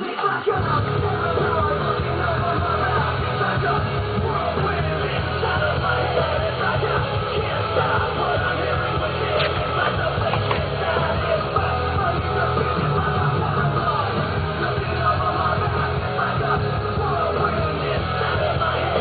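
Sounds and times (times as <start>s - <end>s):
loud rock music: 0.0s - 19.0s
yelled vocals: 0.0s - 19.0s.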